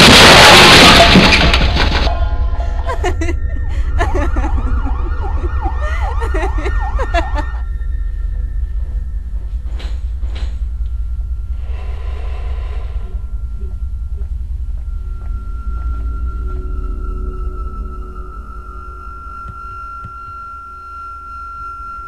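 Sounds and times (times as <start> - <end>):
steady low rumble: 2.0 - 22.0
siren wailing: 2.1 - 9.5, 13.0 - 22.0.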